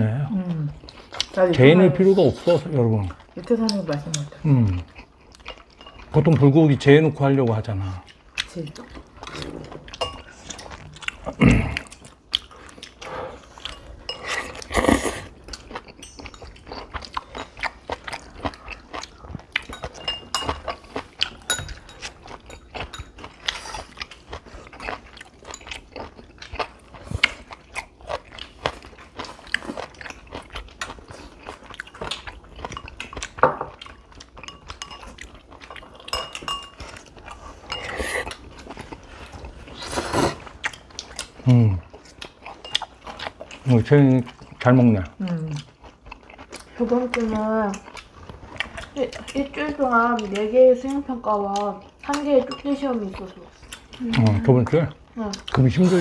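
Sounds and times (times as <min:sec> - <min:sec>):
chewing and biting food: 0:00.6 - 0:56.0
chopsticks clinking on plate: 0:09.3 - 0:10.3, 0:15.9 - 0:16.9, 0:19.6 - 0:23.6, 0:32.6 - 0:38.2.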